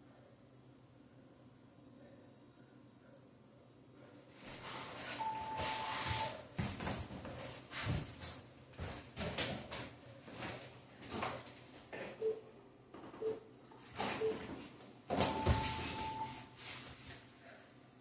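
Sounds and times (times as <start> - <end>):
steady beep: 5.2 - 6.4, 13.2 - 13.4, 15.2 - 16.4.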